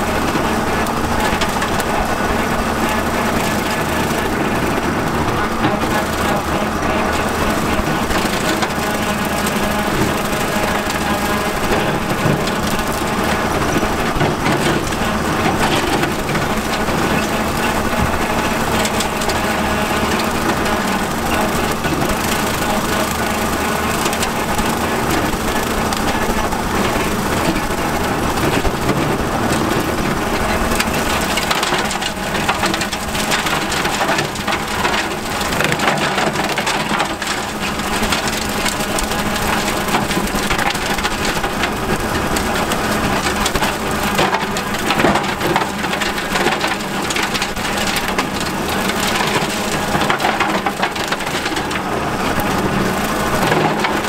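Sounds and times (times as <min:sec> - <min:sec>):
tractor engine: 0:00.0 - 0:54.0.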